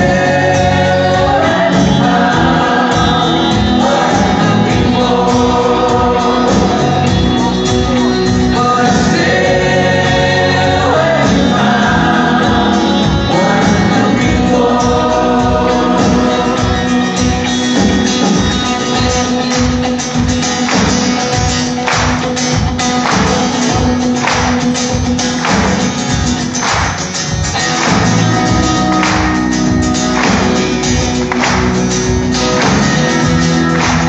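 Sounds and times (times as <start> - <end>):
choir singing: 0.0 - 19.5
drums: 0.0 - 34.0
live band with electric guitar: 0.0 - 34.0.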